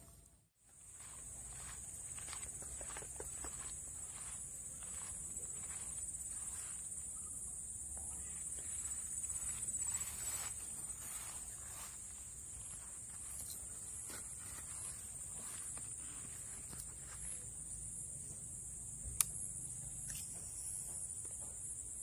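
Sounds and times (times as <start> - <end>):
footsteps through grass: 0.6 - 7.4, 8.2 - 17.5
high-pitched insect drone: 0.8 - 22.0.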